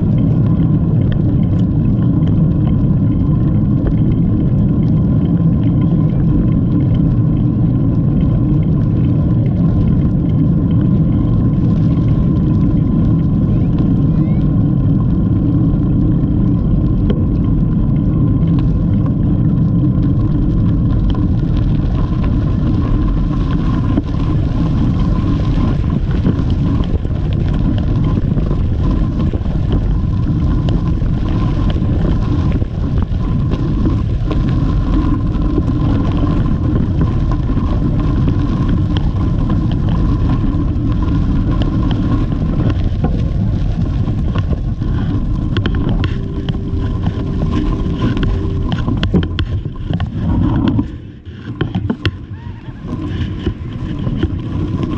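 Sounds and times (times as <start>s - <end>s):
bike tyres rolling on gravel: 0.0s - 54.9s
wind buffeting microphone: 0.0s - 54.9s
thin steady tone: 45.5s - 52.3s.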